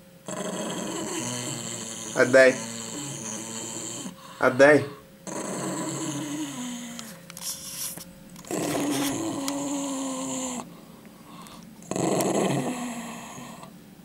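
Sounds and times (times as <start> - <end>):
dog growling low: 0.2 - 7.2, 8.4 - 10.7, 11.4 - 13.8.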